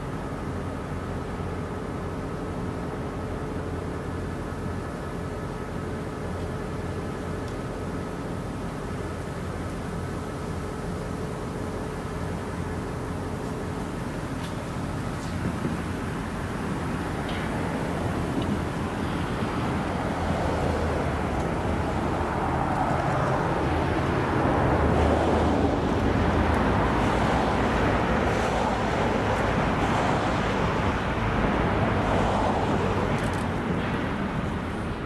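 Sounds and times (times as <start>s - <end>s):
diesel locomotive engine drone: 0.0s - 35.0s.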